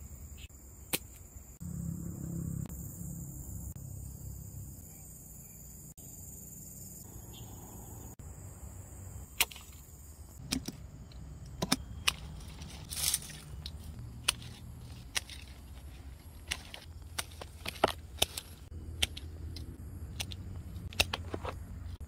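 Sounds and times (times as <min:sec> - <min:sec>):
pruning shears snipping branches: 0:11.5 - 0:21.6.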